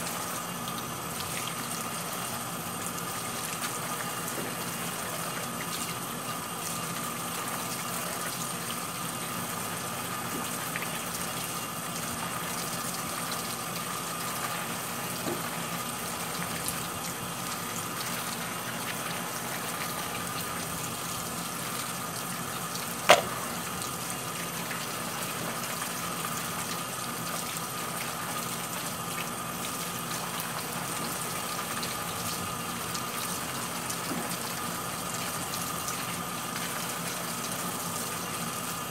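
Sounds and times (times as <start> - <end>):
tap water running into sink: 0.0 - 6.0, 10.1 - 38.4
sharp knock: 23.1 - 23.4.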